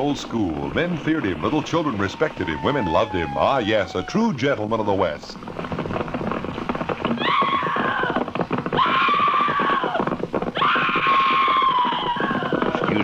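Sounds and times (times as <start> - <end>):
hoofbeats clattering: 0.0 - 13.0
horse whinnying: 1.0 - 4.9, 6.7 - 13.0.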